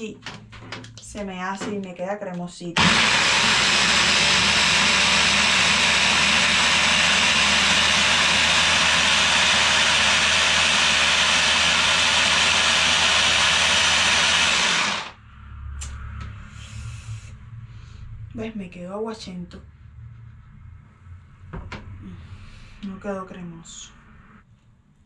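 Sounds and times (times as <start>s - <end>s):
electric mixer blending: 2.8s - 15.2s.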